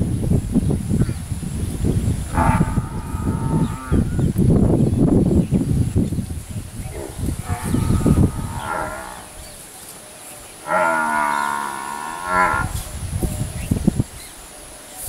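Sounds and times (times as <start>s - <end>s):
low rumbling noise: 0.0s - 9.6s.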